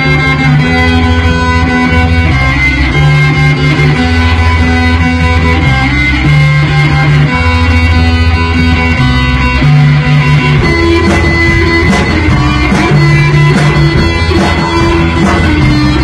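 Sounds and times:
bass line: 0:00.0 - 0:16.0
live rock band playing: 0:00.0 - 0:16.0.

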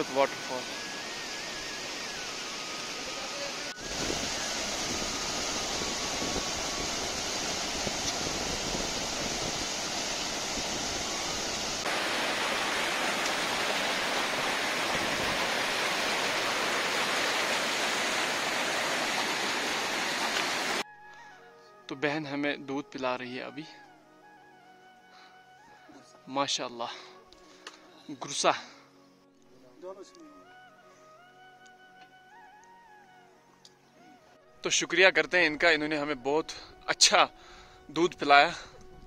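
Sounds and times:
waterfall rushing over boulders: 0:00.0 - 0:20.8.

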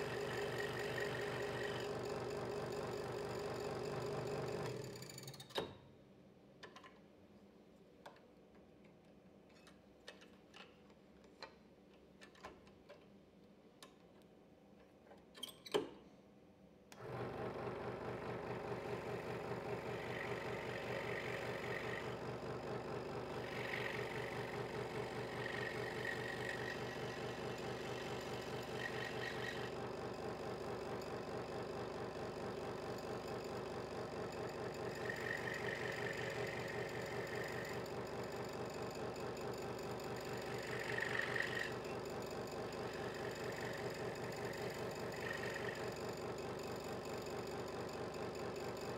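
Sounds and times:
scroll saw running: 0:00.0 - 0:02.4, 0:17.0 - 0:39.1, 0:39.7 - 0:48.9
small clicks and handling knocks: 0:06.6 - 0:07.1, 0:08.0 - 0:16.0
saw blade cutting thin wood: 0:28.7 - 0:29.7.

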